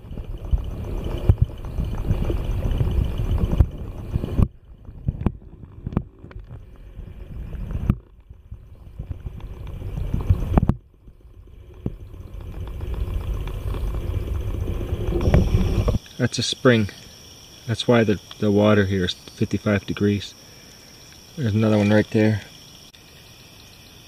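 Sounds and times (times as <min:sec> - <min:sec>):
underwater rumble and gurgling: 0:00.0 - 0:16.0.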